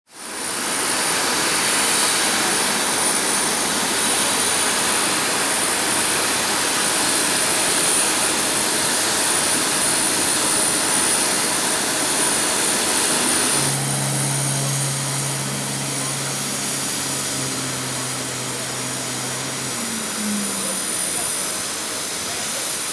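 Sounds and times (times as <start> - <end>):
jet turbine whine: 0.1 - 22.9
rushing noise: 13.4 - 22.3
low steady hum: 13.6 - 22.1.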